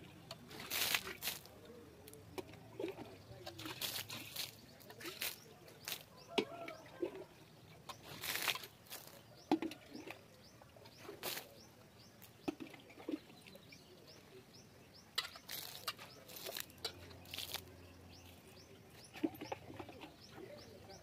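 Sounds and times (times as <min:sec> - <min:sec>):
faint birds chirping: 0:00.0 - 0:21.0
water splashing on dirt: 0:00.4 - 0:07.3, 0:07.9 - 0:10.2, 0:11.0 - 0:11.6, 0:15.1 - 0:20.0.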